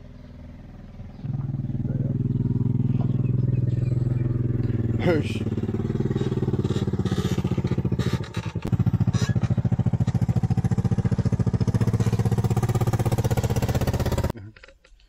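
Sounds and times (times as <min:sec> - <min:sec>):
quad bike engine running: 0:00.0 - 0:14.4.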